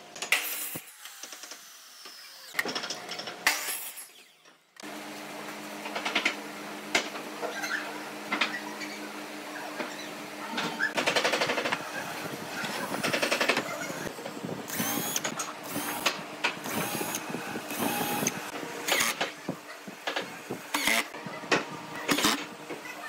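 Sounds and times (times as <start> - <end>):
cordless drill bursts: 14.7 - 19.2, 20.7 - 21.1, 22.1 - 22.4.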